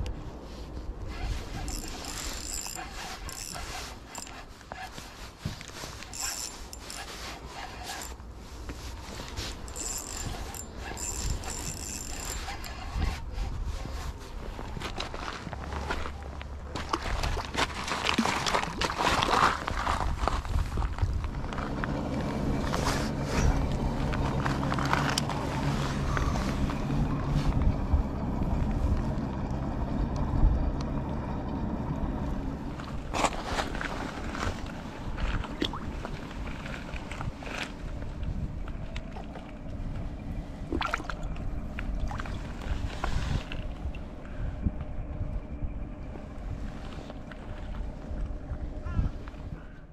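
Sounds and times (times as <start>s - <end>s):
handling rustle: 0.2s - 16.5s, 32.8s - 38.9s
fishing reel whine: 1.4s - 4.5s, 6.0s - 8.2s, 9.4s - 13.3s
wind rumble on microphone: 8.8s - 49.9s.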